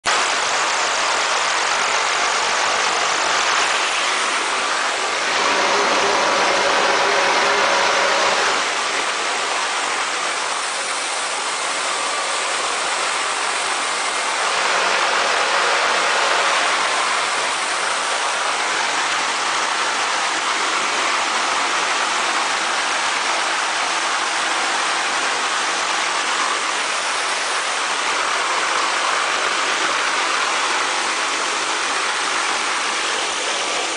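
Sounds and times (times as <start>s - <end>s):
helicopter rotor inside cabin: 22.5s - 33.9s.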